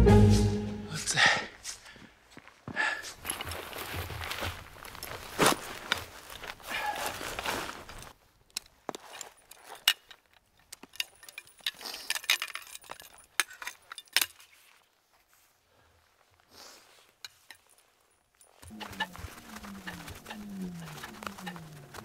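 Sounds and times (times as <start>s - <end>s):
snowshoe buckles clinking: 3.0s - 12.1s.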